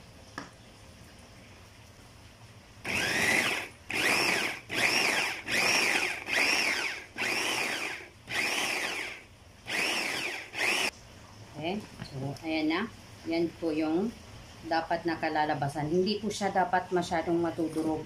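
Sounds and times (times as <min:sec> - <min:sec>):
electric food chopper motor whine: 0:02.8 - 0:10.9.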